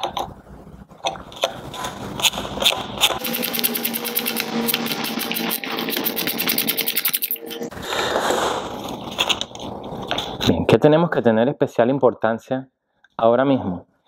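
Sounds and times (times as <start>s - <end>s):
steady hum: 0.1s - 10.5s.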